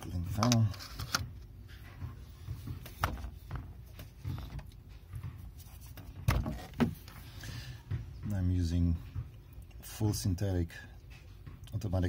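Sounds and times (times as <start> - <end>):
soft knocks: 1.8 - 9.4.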